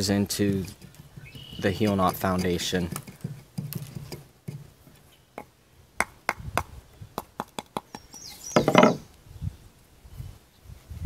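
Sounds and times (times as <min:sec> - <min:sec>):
handling noise: 0:00.5 - 0:05.1, 0:08.5 - 0:09.0
knot tapping on wooden board: 0:08.6 - 0:09.0.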